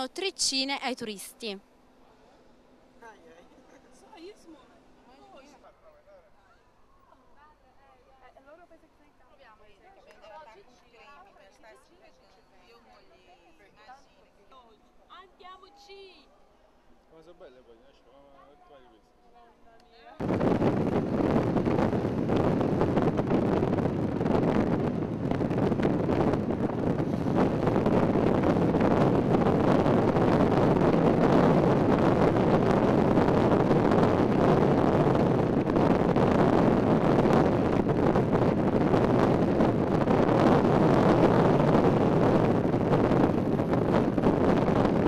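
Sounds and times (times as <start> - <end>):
car running noise: 20.2 - 45.0
wind buffeting microphone: 20.2 - 45.0.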